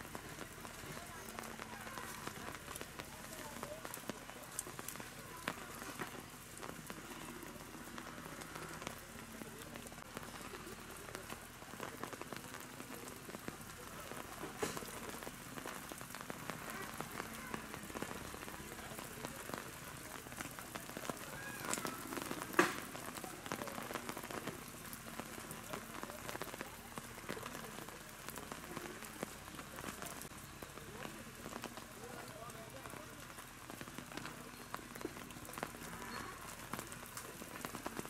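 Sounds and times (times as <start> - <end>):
rain falling: 0.0 - 38.0.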